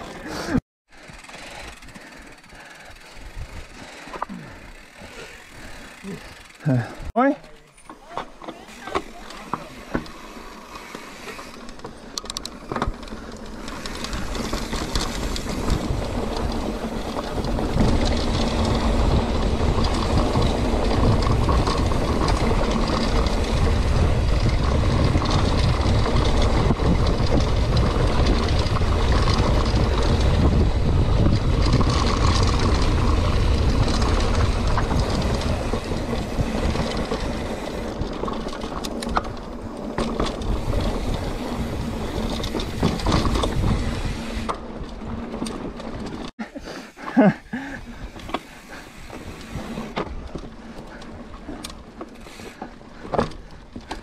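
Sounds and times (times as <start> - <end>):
bike tyres rolling on dirt: 0.0 - 54.0
wind on microphone: 15.1 - 38.2, 40.4 - 44.5.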